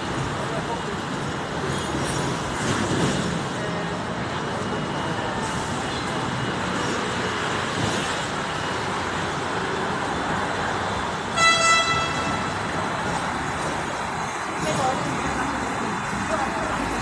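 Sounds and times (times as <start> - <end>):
street traffic: 0.0 - 17.0
tram rumbling on rails: 0.0 - 17.0
horn double toot: 11.4 - 12.6.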